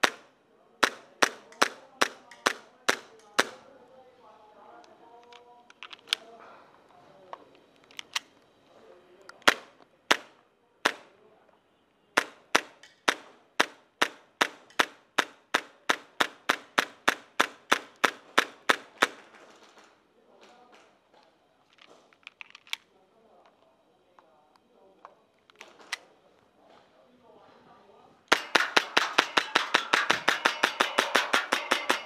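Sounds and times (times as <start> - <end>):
airsoft pistol shots: 0.0 - 3.6, 28.3 - 32.0
airsoft pistol clicks: 12.2 - 18.8.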